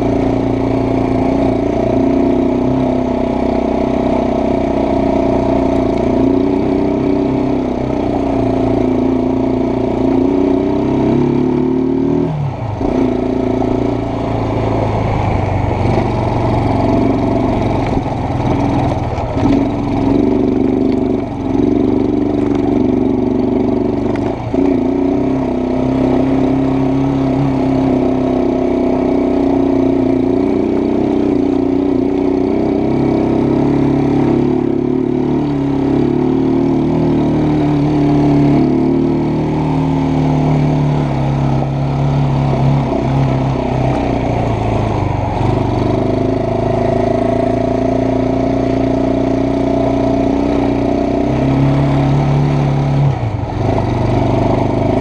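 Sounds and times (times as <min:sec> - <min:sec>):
quad bike engine running: 0:00.0 - 0:55.0.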